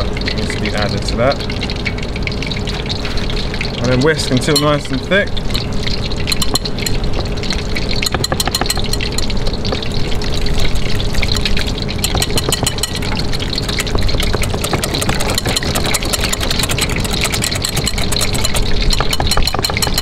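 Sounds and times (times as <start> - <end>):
oil deep-frying hiss: 0.0 - 19.8
whisk clicking against glass bowl: 6.3 - 7.0, 8.0 - 9.4, 11.3 - 20.0.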